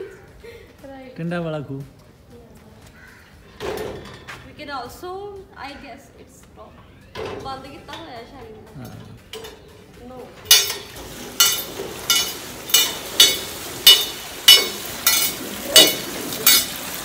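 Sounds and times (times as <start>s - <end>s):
metal gearing and chain clanking: 10.4s - 16.8s
water splashing from buckets: 10.4s - 17.0s.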